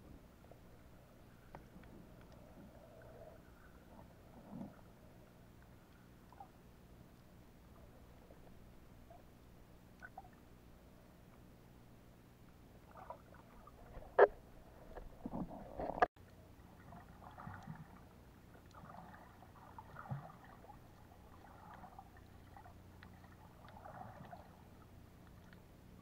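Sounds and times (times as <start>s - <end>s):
water swishing: 0.3s - 11.1s, 12.6s - 26.0s
water splashes: 12.8s - 26.0s.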